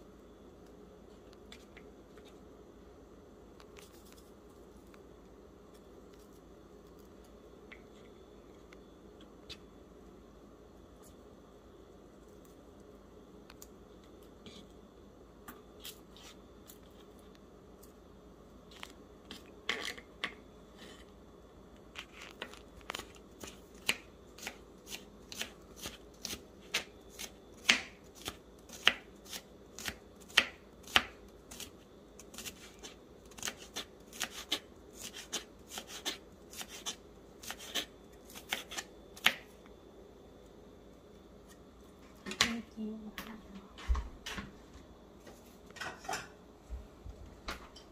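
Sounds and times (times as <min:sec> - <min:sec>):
vegetables being cut: 0:22.0 - 0:39.5.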